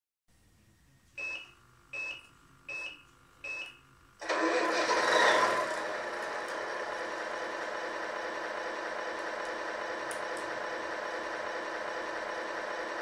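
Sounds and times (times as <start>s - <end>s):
short electronic beeps: 1.2s - 3.8s
simulated diesel engine idling: 4.2s - 13.0s.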